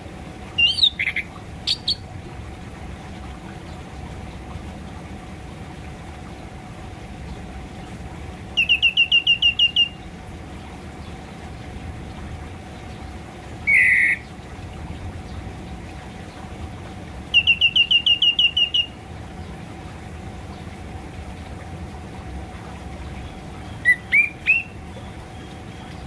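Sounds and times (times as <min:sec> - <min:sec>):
faint steady hum: 0:00.0 - 0:26.0
thrush whistling calls: 0:00.6 - 0:02.0, 0:08.5 - 0:10.1, 0:13.6 - 0:14.3, 0:17.3 - 0:19.0, 0:23.2 - 0:26.0.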